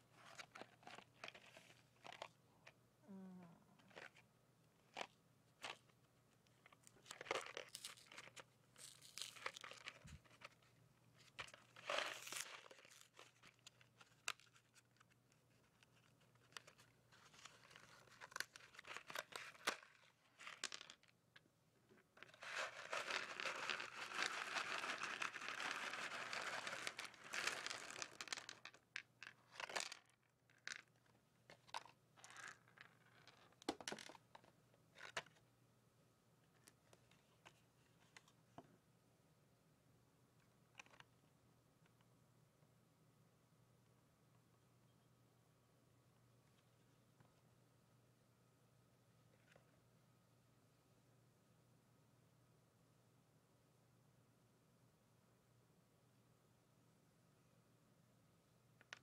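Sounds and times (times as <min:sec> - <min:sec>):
candy wrapper crinkling: 0:06.6 - 0:10.7, 0:11.3 - 0:21.2, 0:22.2 - 0:31.0
packaging rustling and tearing: 0:07.0 - 0:10.4, 0:11.5 - 0:15.1, 0:22.2 - 0:28.2.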